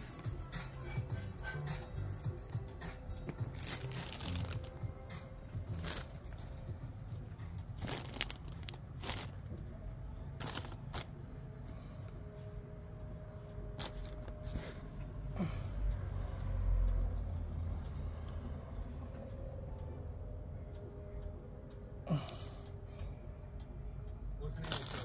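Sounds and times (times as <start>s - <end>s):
hair tie clicks and rustles: 3.2s - 9.6s, 10.4s - 11.2s, 13.8s - 14.5s, 24.6s - 25.0s.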